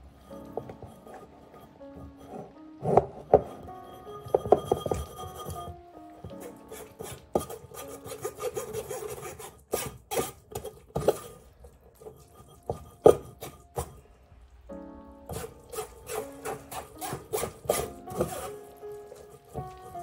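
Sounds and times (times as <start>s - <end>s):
background music: 0.0s - 20.0s
spoon scraping through mesh sieve: 6.3s - 14.0s, 15.3s - 20.0s.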